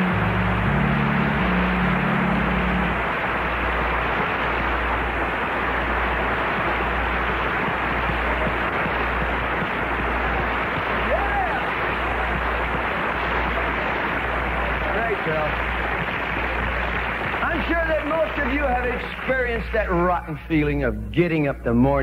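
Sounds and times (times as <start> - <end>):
held chord of a song: 0.0 - 8.7
audience applauding: 0.0 - 20.9.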